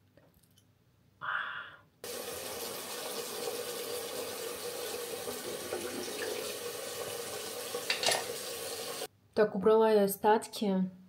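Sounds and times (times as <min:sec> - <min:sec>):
tap running into sink: 0:02.1 - 0:09.0.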